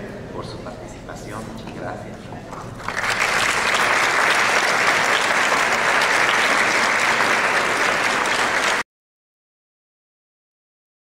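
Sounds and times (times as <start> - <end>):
audience applauding: 2.8 - 8.8.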